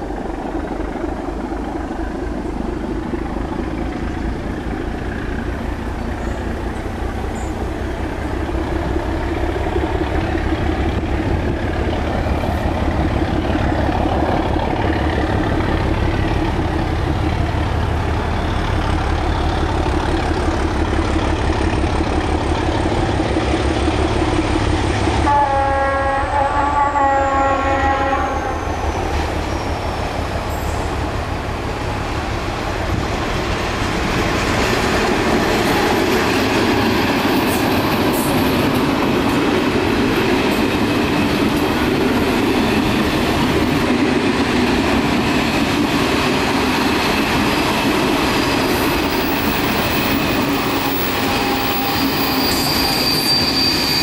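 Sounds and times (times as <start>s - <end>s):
diesel locomotive engine rumbling: 0.0s - 54.0s
locomotive horn blast: 25.2s - 28.7s.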